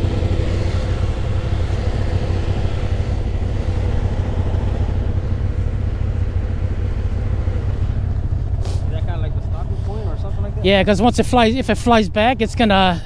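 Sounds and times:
atv engine idling: 0.0s - 13.0s.

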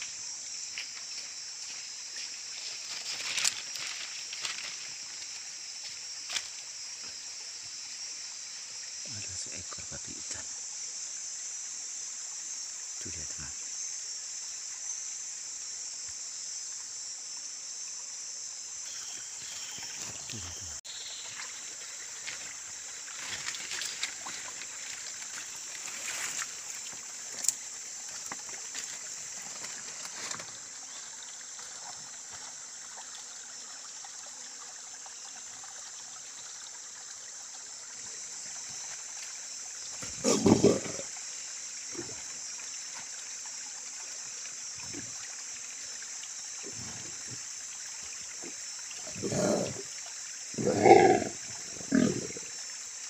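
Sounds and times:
high-pitched hiss: 0.0s - 53.0s
pig grunting: 40.1s - 41.1s, 49.1s - 49.9s, 50.6s - 52.4s.

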